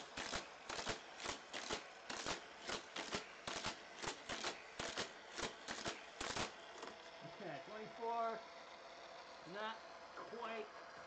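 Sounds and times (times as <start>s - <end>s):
toy car booster whirring bursts: 0.0s - 7.2s.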